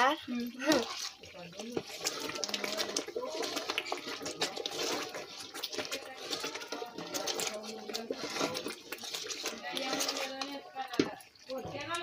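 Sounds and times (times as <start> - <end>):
sauce simmering and spattering: 0.0 - 12.0
wooden spoon stirring: 0.0 - 12.0.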